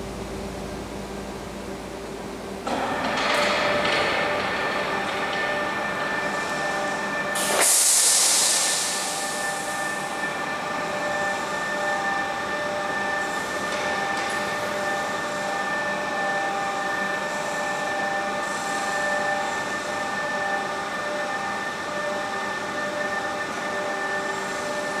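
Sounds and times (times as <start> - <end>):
machinery hum: 0.0 - 25.0
rush of hiss: 7.4 - 9.2.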